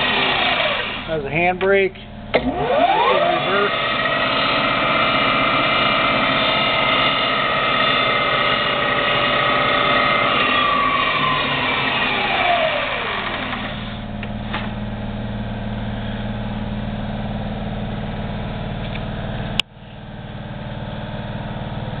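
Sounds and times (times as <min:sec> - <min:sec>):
milling machine motor winding down: 0:00.0 - 0:01.3, 0:02.3 - 0:16.4
steady low hum: 0:00.8 - 0:11.6, 0:13.8 - 0:22.0.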